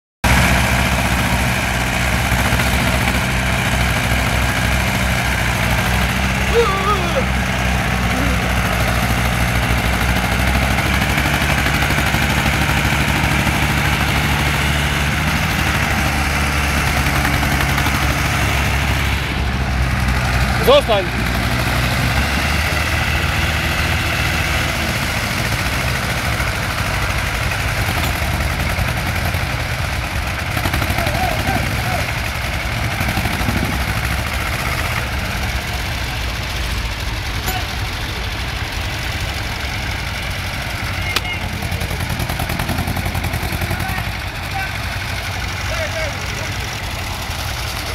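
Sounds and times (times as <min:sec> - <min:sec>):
tractor diesel engine idling: 0:00.2 - 0:47.9.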